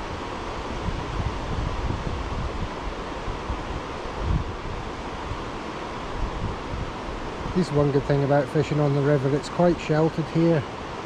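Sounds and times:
wind buffeting microphone: 0:00.0 - 0:08.4
river water flowing: 0:00.0 - 0:11.0.

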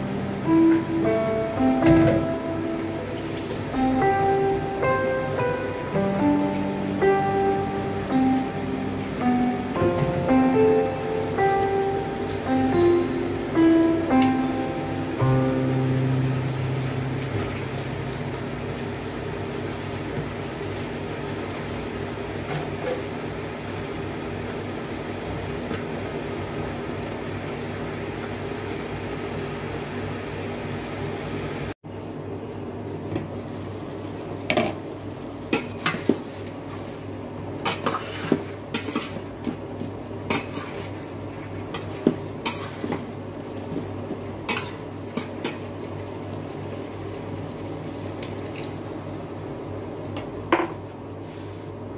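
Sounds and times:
chicken sizzling in a wok: 0:33.4 - 0:49.0
spatula scraping a wok: 0:37.7 - 0:39.2, 0:41.7 - 0:43.0.

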